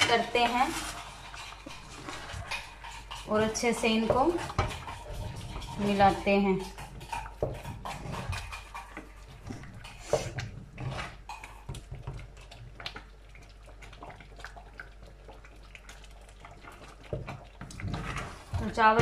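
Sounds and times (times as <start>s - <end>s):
wooden spoon stirring in a steel pot: 0.0s - 19.0s.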